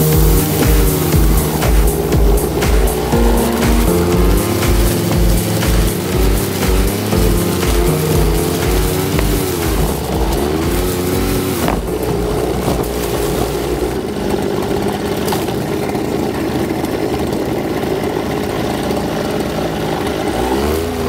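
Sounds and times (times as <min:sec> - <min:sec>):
brush cutter cutting grass: 0:05.4 - 0:15.5.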